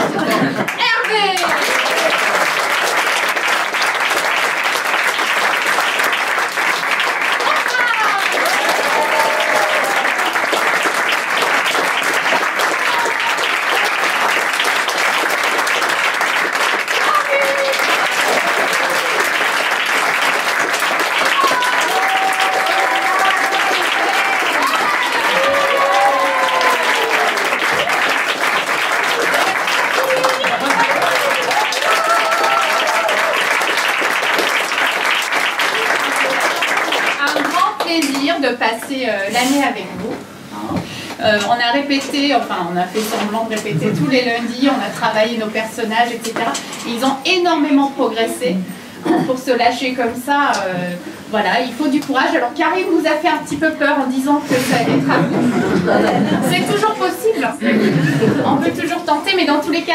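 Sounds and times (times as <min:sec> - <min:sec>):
audience applauding: 0:00.0 - 0:38.4.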